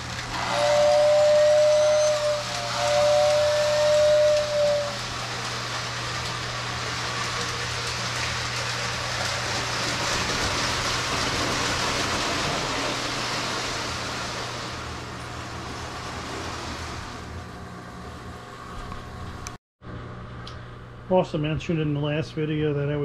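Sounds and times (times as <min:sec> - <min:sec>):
toy trains rolling on track: 0:00.0 - 0:13.0.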